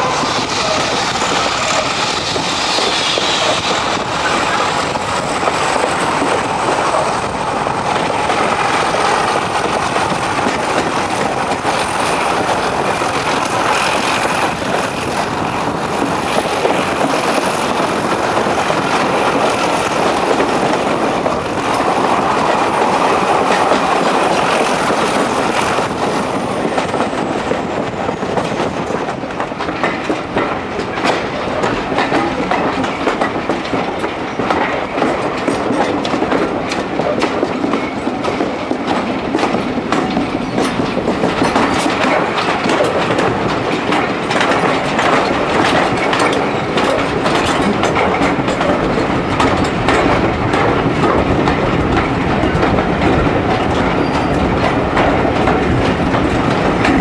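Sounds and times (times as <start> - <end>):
clickety-clack over rail joints: 0.0 - 57.0
train wheels rumbling on rails: 0.0 - 57.0
high wheel squeal: 53.9 - 54.5.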